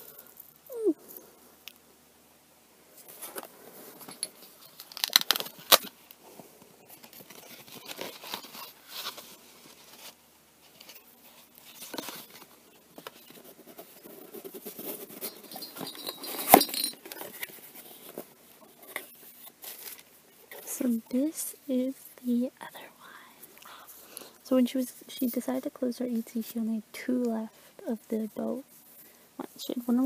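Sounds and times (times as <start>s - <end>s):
packaging rustling: 3.0s - 6.0s, 6.8s - 21.0s
light clicks and clinks: 15.2s - 17.5s.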